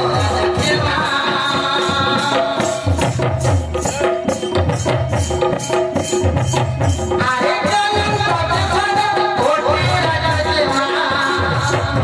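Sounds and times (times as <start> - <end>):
drums and jingling percussion: 0.0 - 12.0.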